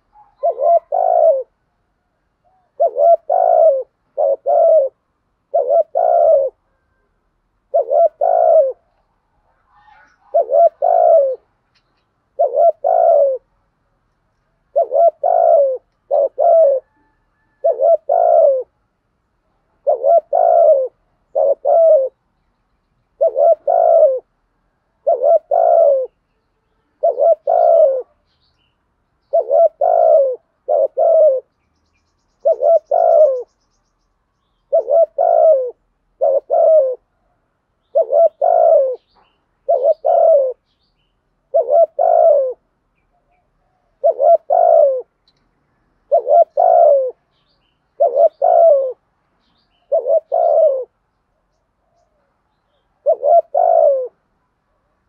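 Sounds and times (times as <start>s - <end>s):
dove cooing: 0.0s - 1.6s, 2.4s - 13.5s, 14.7s - 18.8s, 19.6s - 22.2s, 23.2s - 26.2s, 26.9s - 28.2s, 29.3s - 31.5s, 32.4s - 33.5s, 34.7s - 40.6s, 41.4s - 45.2s, 46.0s - 47.2s, 47.9s - 49.0s, 49.7s - 51.0s, 53.0s - 54.3s.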